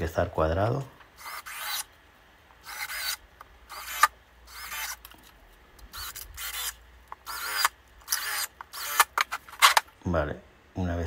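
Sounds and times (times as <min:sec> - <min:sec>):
cordless drill driving screws: 0:02.6 - 0:05.2, 0:05.9 - 0:09.8.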